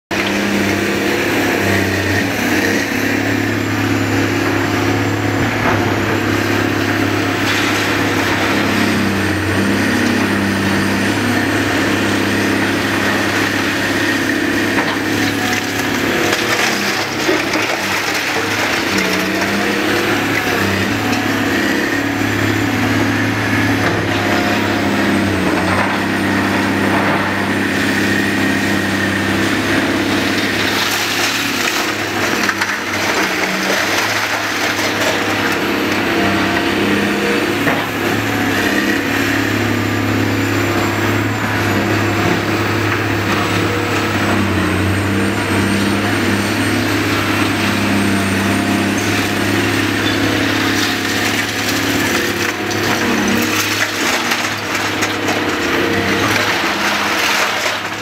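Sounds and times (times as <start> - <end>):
excavator diesel engine: 0.0 - 58.0.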